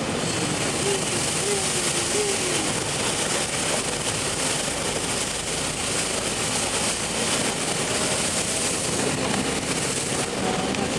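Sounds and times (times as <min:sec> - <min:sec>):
car engine: 0:00.0 - 0:10.9
tyres running through water: 0:00.0 - 0:10.9.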